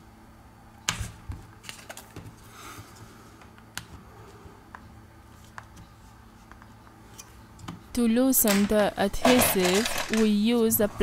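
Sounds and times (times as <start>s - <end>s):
plastic tools clicking and tapping: 8.4s - 10.3s.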